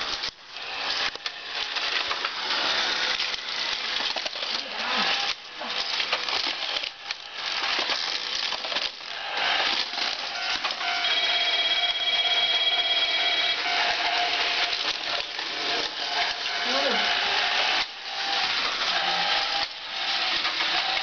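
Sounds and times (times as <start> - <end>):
plastic parts clattering: 0.0 - 11.5, 13.6 - 16.9
toy train motor whirring: 0.0 - 21.0.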